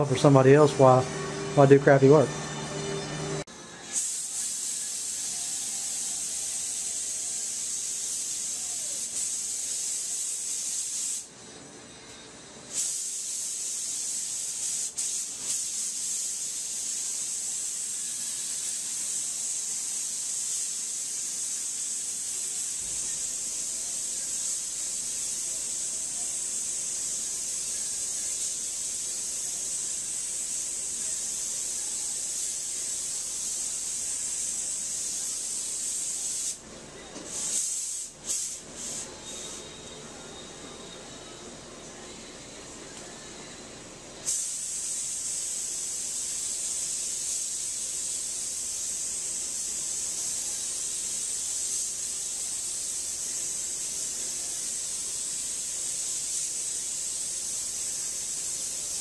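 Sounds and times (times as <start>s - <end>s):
spray gun hissing: 3.9s - 11.3s, 12.7s - 36.6s, 37.3s - 39.6s, 44.2s - 59.0s.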